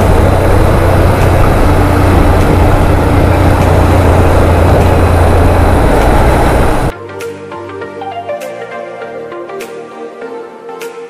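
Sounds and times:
motorcycle engine drone: 0:00.0 - 0:06.9
wind and road rushing: 0:00.0 - 0:06.9.

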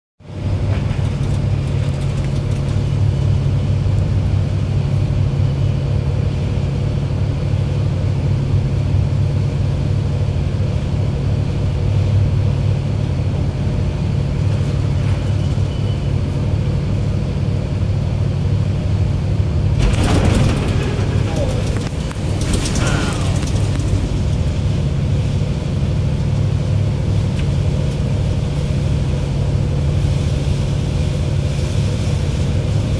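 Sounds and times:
ferry engines droning: 0:00.2 - 0:32.9
water rushing along hull: 0:00.3 - 0:32.9
wind buffeting microphone: 0:19.8 - 0:29.1.

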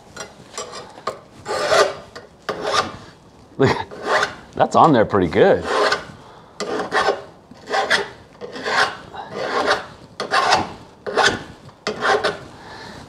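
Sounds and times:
file scraping steel bar: 0:00.2 - 0:03.1, 0:03.9 - 0:04.5, 0:05.6 - 0:12.5.

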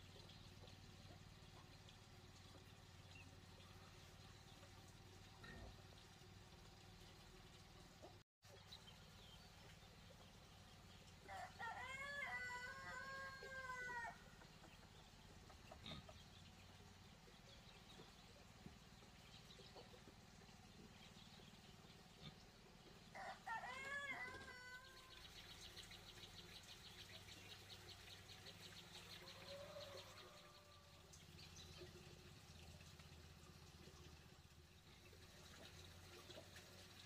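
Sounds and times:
rooster crowing: 0:11.3 - 0:14.2, 0:23.2 - 0:25.0.

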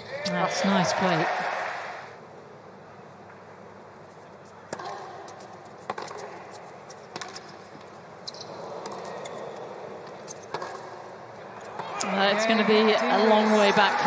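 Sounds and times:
tennis racket hitting ball: 0:04.7 - 0:07.6, 0:10.4 - 0:11.1.

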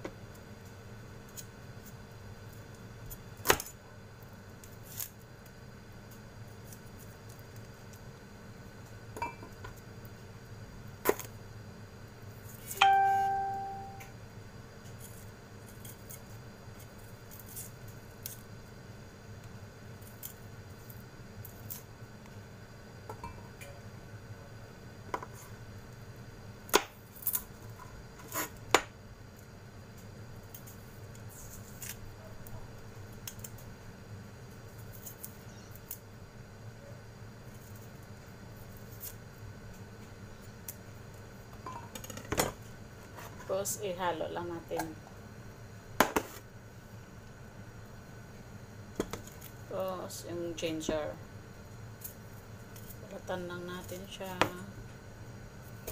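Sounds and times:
faint background hum: 0:00.0 - 0:55.9
sharp ringing clink: 0:12.8 - 0:14.1
garlic skins peeled by hand: 0:29.4 - 0:33.7, 0:34.5 - 0:36.1, 0:37.4 - 0:40.9
knife peeling garlic: 0:30.5 - 0:32.1.

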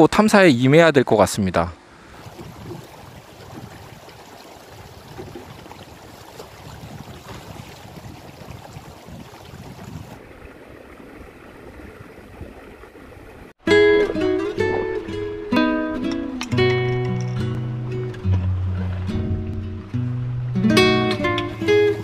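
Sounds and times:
stream rushing over stones: 0:01.9 - 0:13.6.

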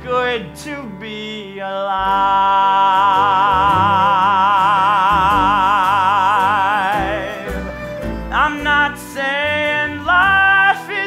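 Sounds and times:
man singing long high note: 0:00.0 - 0:11.0
band accompaniment: 0:05.3 - 0:10.6.

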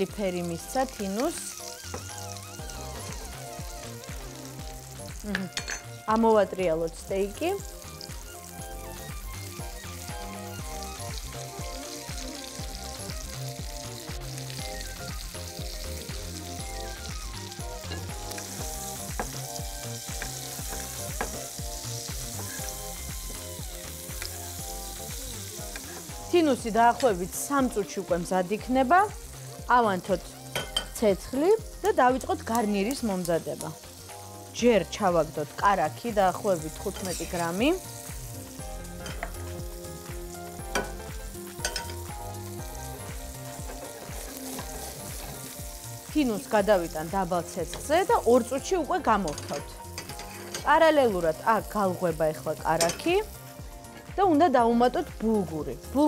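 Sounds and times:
background music with steady beat: 0:00.0 - 0:56.0
fish sizzling in butter: 0:00.0 - 0:56.0
utensils clicking against pans: 0:05.2 - 0:06.0, 0:17.8 - 0:19.4, 0:20.0 - 0:21.6, 0:22.3 - 0:22.8, 0:30.5 - 0:31.0, 0:31.8 - 0:33.7, 0:36.8 - 0:37.6, 0:39.0 - 0:39.4, 0:40.7 - 0:42.1, 0:43.5 - 0:45.6, 0:47.6 - 0:50.9, 0:52.6 - 0:53.3.

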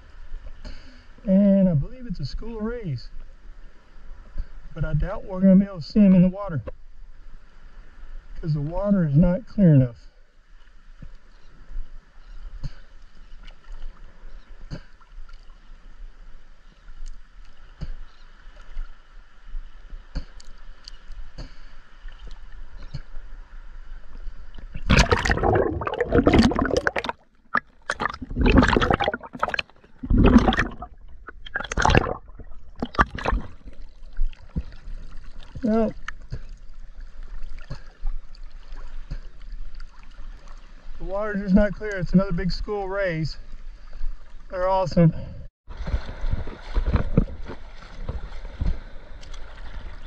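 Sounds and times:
water lapping and sloshing: 0:06.4 - 0:50.0
loud gurgling splashes: 0:24.8 - 0:33.9.

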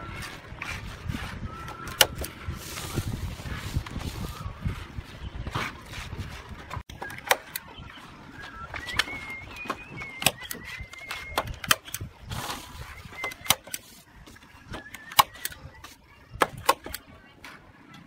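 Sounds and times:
bird whistling: 0:01.4 - 0:04.7, 0:06.9 - 0:16.0.

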